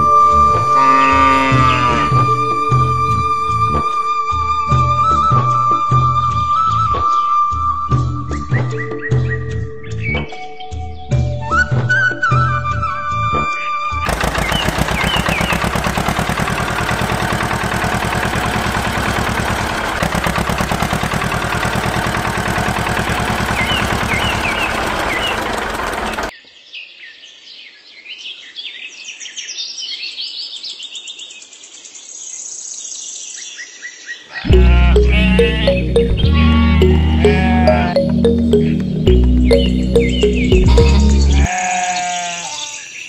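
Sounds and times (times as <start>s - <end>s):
birds chirping: 14.1s - 26.3s, 33.7s - 43.0s
small engine rattling: 14.1s - 26.3s.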